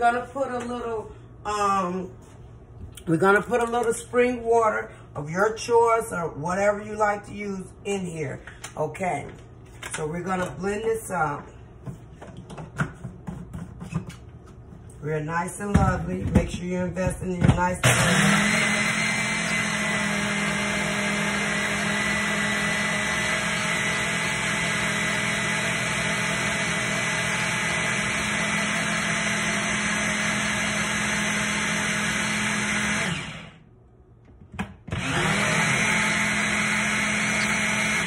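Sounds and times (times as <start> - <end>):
blender motor running: 17.8 - 33.6, 34.9 - 38.0.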